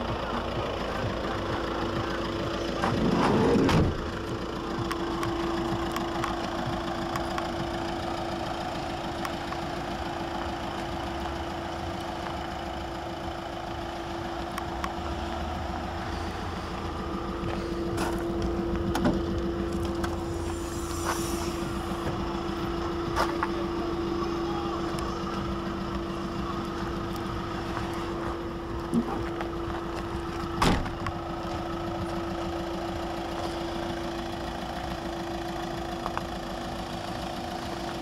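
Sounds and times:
engine idling: 0:00.0 - 0:38.0
tailgate clicks and knocks: 0:30.6 - 0:31.1.

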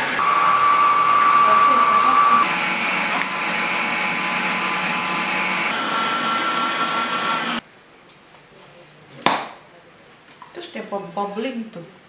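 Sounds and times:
small electric motor whirring: 0:00.0 - 0:07.6.

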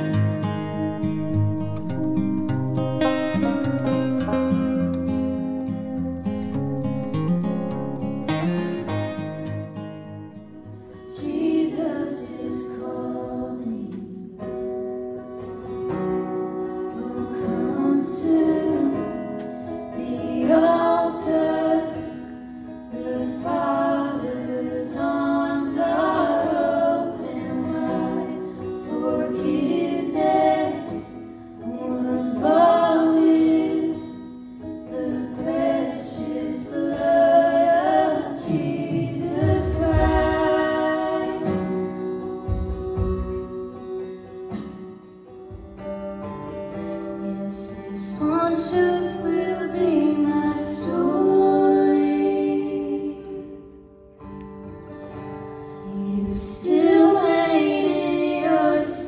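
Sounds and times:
strummed acoustic guitar: 0:00.0 - 0:59.0
woman singing into a microphone: 0:11.0 - 0:14.6, 0:16.9 - 0:22.3, 0:22.9 - 0:42.1, 0:47.2 - 0:53.7, 0:55.8 - 0:59.0.

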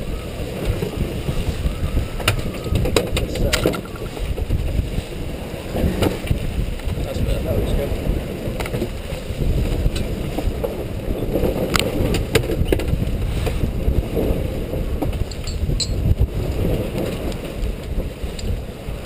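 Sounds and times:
water rushing past boat: 0:00.0 - 0:19.0
wind buffeting microphone: 0:00.0 - 0:19.0.

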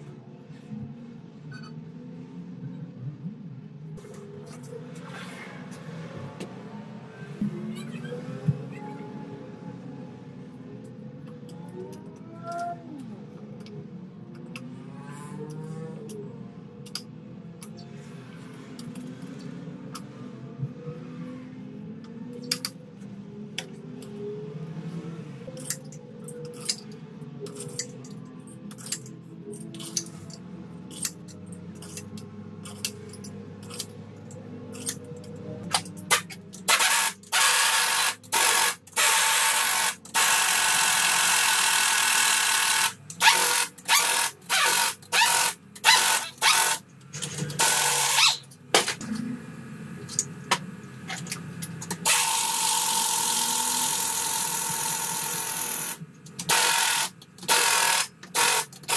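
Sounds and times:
pneumatic wrench bursts: 0:36.1 - 0:46.8, 0:47.6 - 0:48.5, 0:52.0 - 0:58.9.

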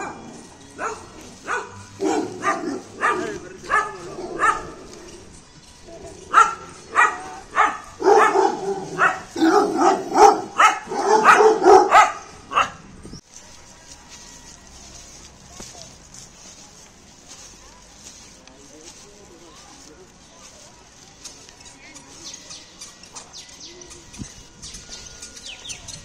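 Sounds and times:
dog barking: 0:00.0 - 0:04.8, 0:06.3 - 0:12.8.

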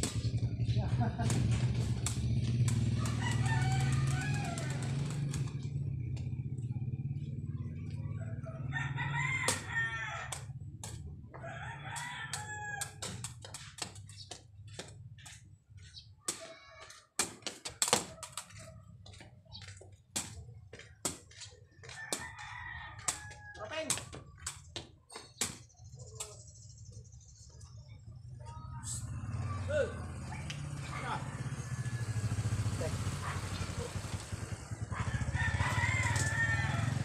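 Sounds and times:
rooster crowing: 0:02.9 - 0:05.2, 0:08.1 - 0:10.5, 0:11.3 - 0:13.1, 0:21.8 - 0:23.8, 0:31.2 - 0:33.4, 0:34.9 - 0:37.0.

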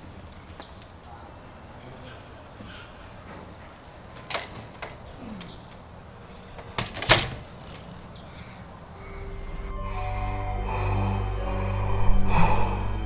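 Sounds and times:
door creaking: 0:03.2 - 0:08.1
door latch clicking: 0:04.1 - 0:08.0
low music: 0:09.0 - 0:13.0.

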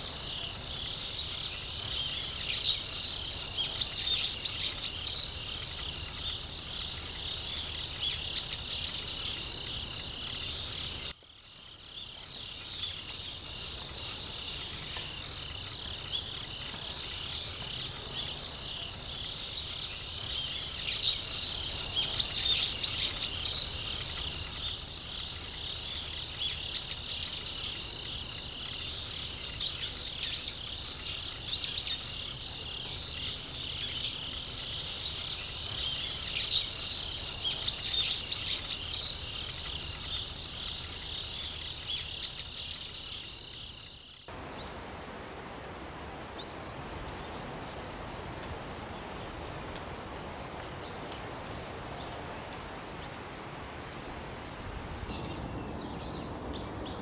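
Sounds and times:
small birds chirping and calling: 0:00.0 - 0:57.0.

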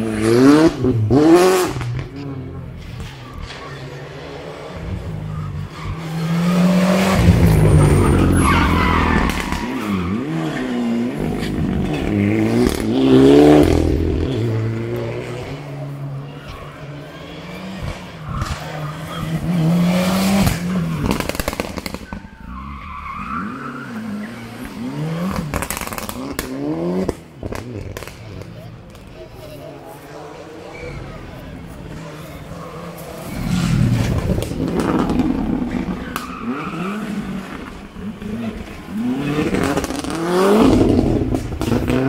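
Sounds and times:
rally car engines accelerating: 0:00.0 - 0:42.0
engine cracks and pops: 0:20.4 - 0:22.2, 0:25.5 - 0:28.2, 0:33.9 - 0:36.4.

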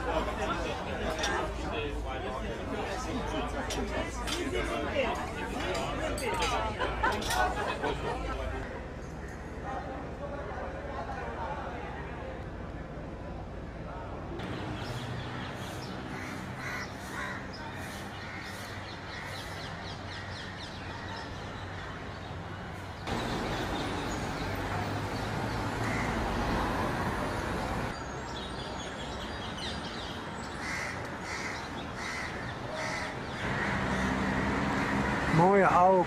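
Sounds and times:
dense traffic noise: 0:00.0 - 0:36.0
street noise: 0:00.0 - 0:36.0
crows cawing: 0:16.1 - 0:21.9, 0:25.8 - 0:26.4, 0:30.6 - 0:35.4.

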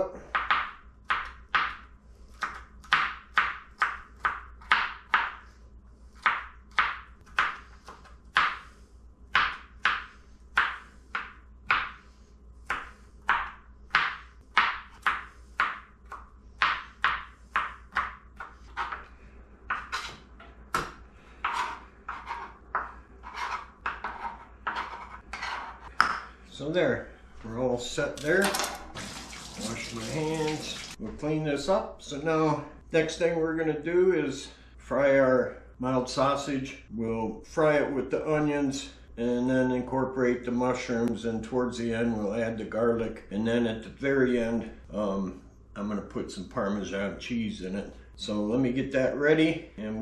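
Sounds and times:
knife chopping on plastic board: 0:00.3 - 0:05.4, 0:06.2 - 0:08.7, 0:09.3 - 0:12.0, 0:12.6 - 0:19.1.

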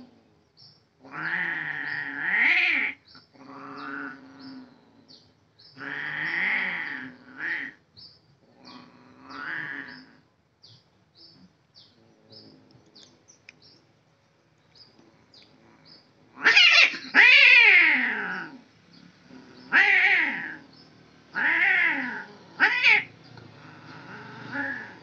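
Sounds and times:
cats yowling: 0:01.1 - 0:03.0, 0:05.8 - 0:07.8, 0:08.7 - 0:10.2, 0:16.3 - 0:18.6, 0:19.3 - 0:20.7, 0:21.3 - 0:25.0.

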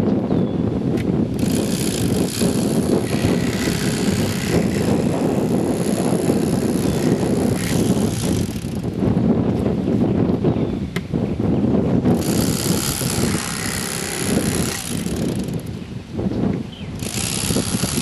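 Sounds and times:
electric fillet knife running: 0:01.4 - 0:08.9, 0:12.2 - 0:15.6, 0:17.0 - 0:18.0.

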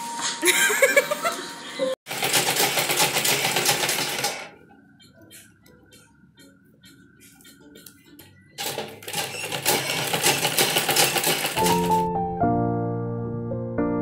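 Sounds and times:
sewing machine stitching: 0:02.1 - 0:04.6, 0:08.6 - 0:12.0.

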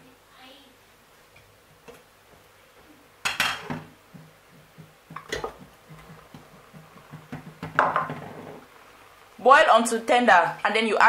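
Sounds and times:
bowl knocking on pot: 0:03.2 - 0:08.6
pot lid knocking on pot: 0:06.8 - 0:08.2.

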